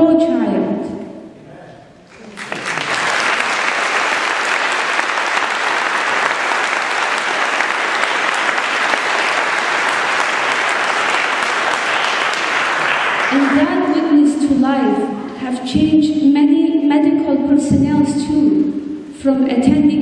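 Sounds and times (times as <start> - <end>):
audience applauding: 2.1 - 13.7.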